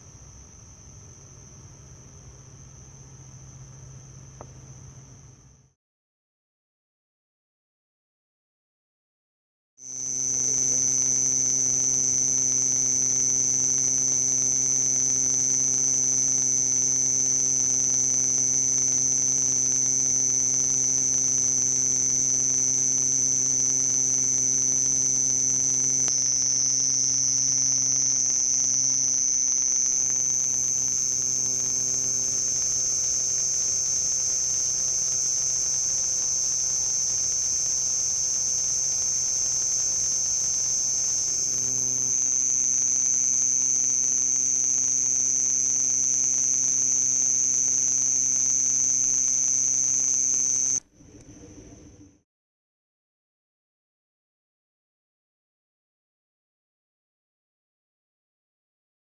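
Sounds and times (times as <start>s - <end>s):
cricket chirping: 0.0s - 5.7s, 9.8s - 50.8s
low hum: 21.6s - 52.2s.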